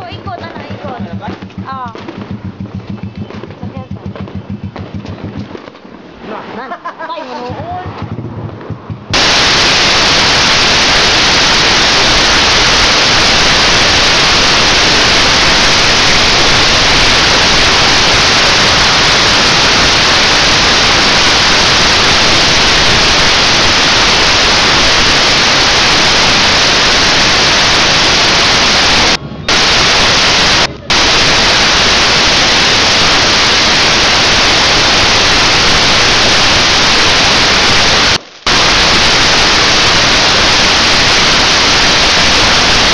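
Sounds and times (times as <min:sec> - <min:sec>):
static-like hiss: 0:09.0 - 0:42.9.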